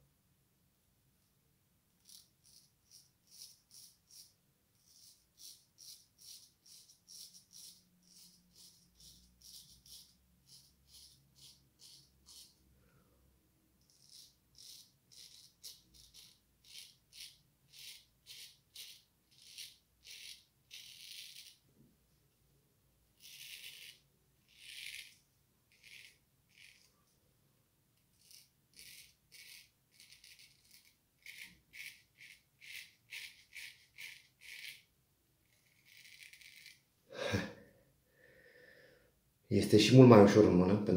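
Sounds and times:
straight razor scraping stubble: 2.0 - 12.6, 23.2 - 27.0, 28.1 - 34.9, 35.5 - 36.8.

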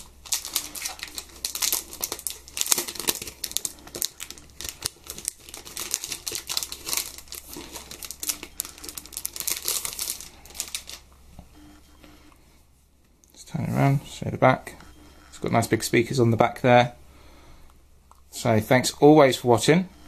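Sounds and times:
plastic packaging crinkling: 0.0 - 11.2.

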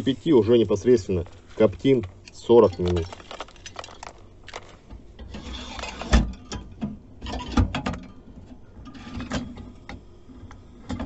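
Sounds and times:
wood chips rustling in metal tray: 0.0 - 6.2
metal parts knocking: 2.1 - 4.8.

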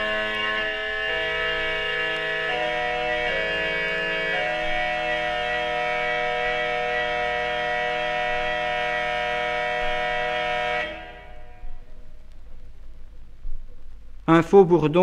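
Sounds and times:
reed pipe organ playing chords: 0.0 - 11.9.

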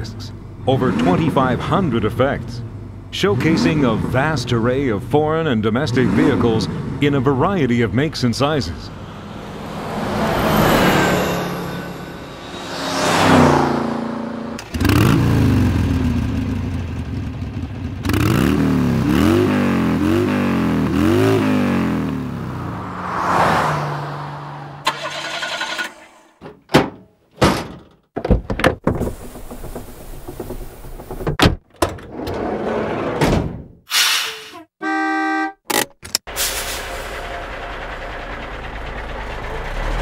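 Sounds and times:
car engine starting and revving: 0.0 - 26.4, 37.6 - 40.0
car passing by: 9.0 - 14.6, 22.4 - 25.4
sharp thunks and clicks: 26.4 - 32.0, 35.6 - 36.3
engine idling: 37.0 - 40.0.

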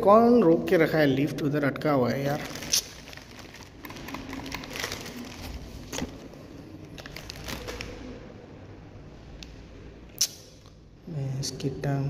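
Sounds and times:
rustling and crinkling: 2.3 - 8.1.

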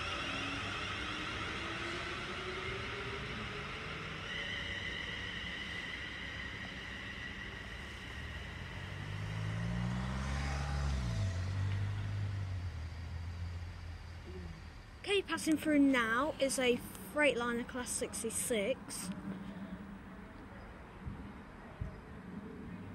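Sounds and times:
electric train motor whine: 0.0 - 15.4
low engine drone: 0.0 - 17.2.

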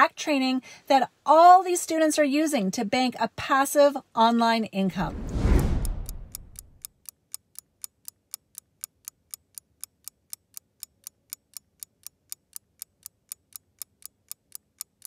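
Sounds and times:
timer ticking: 5.1 - 15.0.

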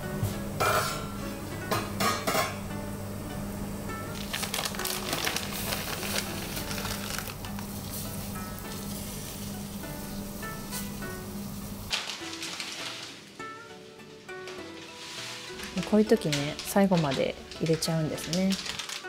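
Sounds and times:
soft guitar music: 0.0 - 19.0
water boiling in a pot: 4.1 - 11.9.

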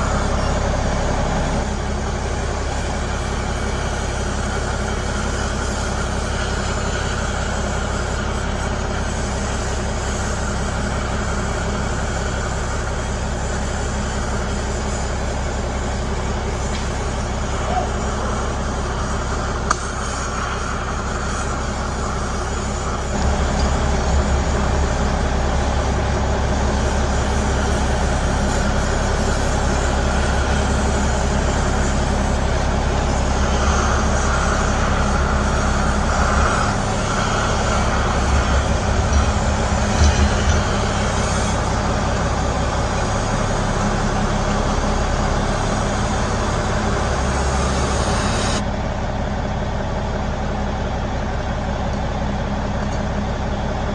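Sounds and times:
torch flame hissing: 0.0 - 48.6
low rumble: 22.3 - 28.4, 32.5 - 45.3.

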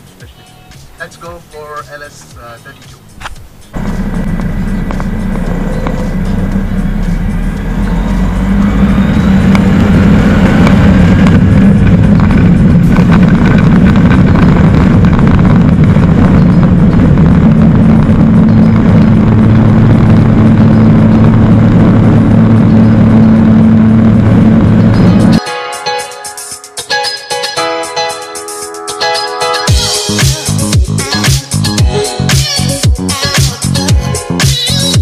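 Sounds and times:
light aircraft engine drone: 3.7 - 25.4.

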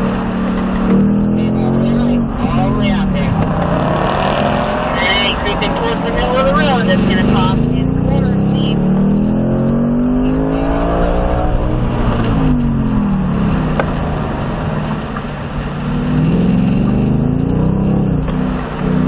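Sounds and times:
car engine accelerating: 0.0 - 19.0.

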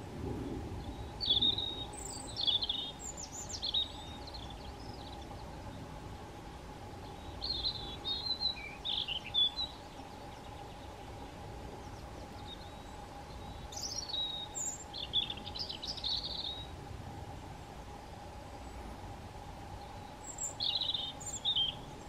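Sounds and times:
faint steady hum: 0.0 - 22.0
robin warbling song: 0.8 - 5.6, 7.0 - 11.2, 11.9 - 16.7, 19.8 - 22.0.

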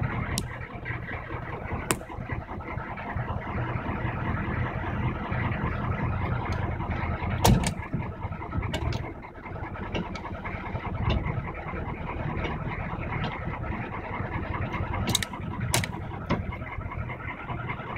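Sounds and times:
diesel engine idling: 0.0 - 17.9
engine knocks: 0.0 - 17.9.

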